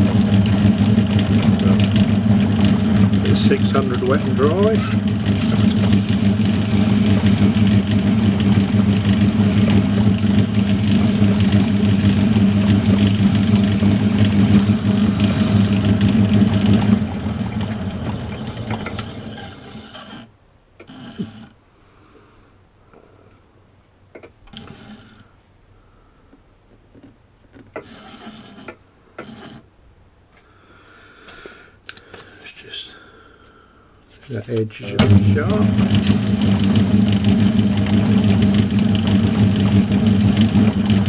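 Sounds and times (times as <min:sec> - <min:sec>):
lathe running down: 0:00.0 - 0:20.0, 0:34.8 - 0:41.0
abrasive sheet on spinning metal: 0:00.0 - 0:20.2, 0:34.8 - 0:41.0
metal lathe motor hum: 0:00.0 - 0:20.2, 0:34.9 - 0:41.0.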